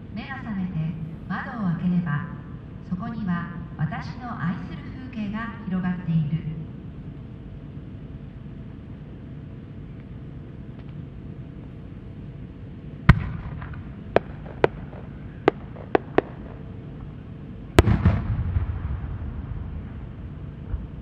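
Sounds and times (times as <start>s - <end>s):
sharp firework cracks: 13.1s - 16.7s, 17.8s - 19.4s
firework mortar launch bang: 17.8s - 19.6s.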